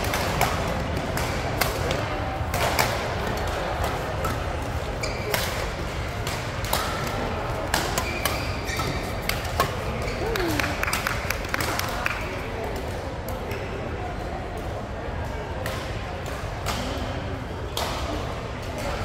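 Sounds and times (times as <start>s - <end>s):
background chatter: 0.0s - 19.0s
shoe squeaks: 5.0s - 5.4s, 8.0s - 9.2s.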